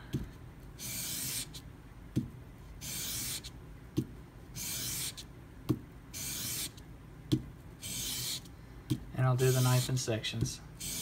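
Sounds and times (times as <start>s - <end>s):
knife blade scratching on sandpaper: 0.8s - 1.6s, 2.8s - 3.5s, 4.6s - 5.2s, 6.2s - 6.8s, 7.8s - 8.5s, 9.4s - 10.1s, 10.8s - 11.0s.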